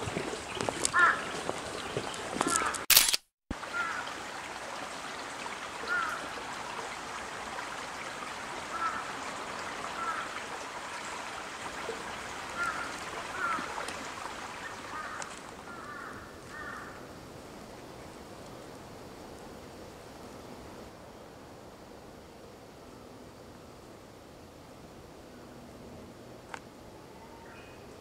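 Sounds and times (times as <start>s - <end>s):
water trickling: 0.0s - 2.8s, 3.5s - 18.5s.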